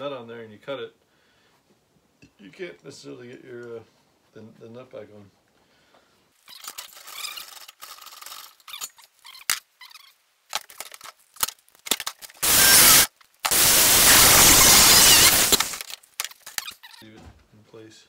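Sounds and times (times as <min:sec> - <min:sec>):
power tool cutting metal rod: 0:12.4 - 0:15.8.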